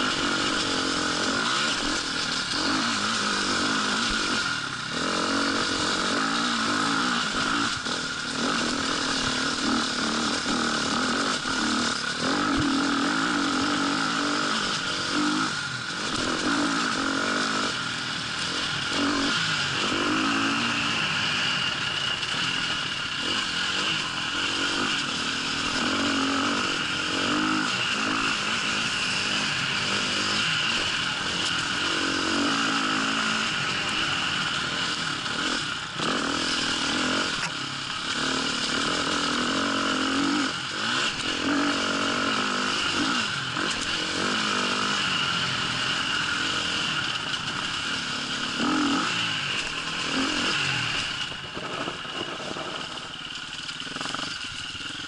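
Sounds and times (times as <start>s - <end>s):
dirt bike engine revving: 0.0s - 55.0s
rattle over rough ground: 0.0s - 55.0s.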